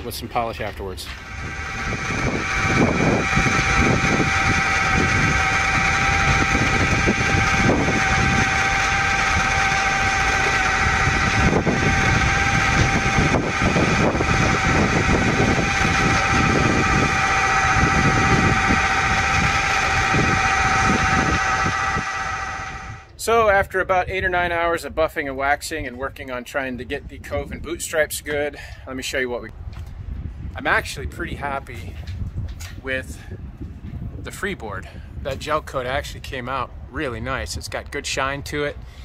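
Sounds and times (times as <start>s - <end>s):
electric buffer motor whine: 1.1s - 23.2s.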